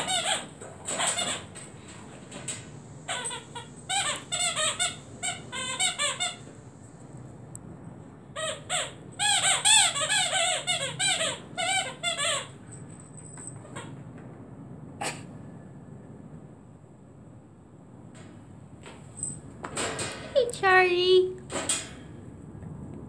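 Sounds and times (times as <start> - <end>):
rubber squeaky toy squeaking: 0.0 - 1.5, 3.1 - 6.4, 8.4 - 12.6.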